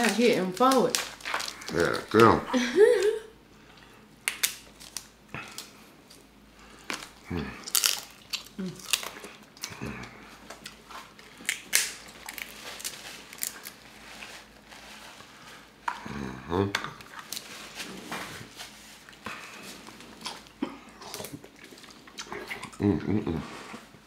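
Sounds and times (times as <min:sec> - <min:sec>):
crab shells cracking: 0:00.0 - 0:02.4, 0:04.2 - 0:06.2, 0:06.9 - 0:09.8, 0:10.5 - 0:13.9
chewing and lip smacks: 0:20.2 - 0:22.8.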